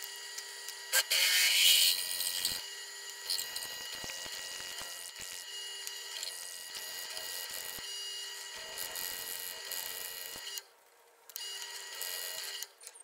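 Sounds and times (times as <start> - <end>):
milling machine motor whine: 0.0 - 10.6
drill boring into metal: 0.9 - 2.6.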